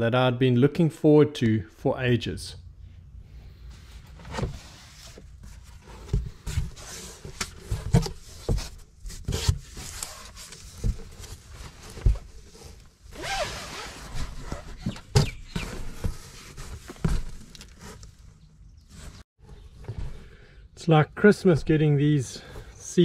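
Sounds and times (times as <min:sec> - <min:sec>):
cardboard and cloth rustling: 0:03.6 - 0:20.2.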